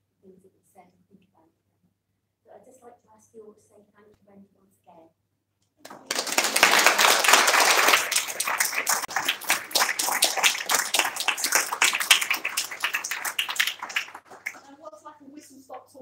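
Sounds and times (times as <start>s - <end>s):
audience applauding: 5.8s - 14.9s.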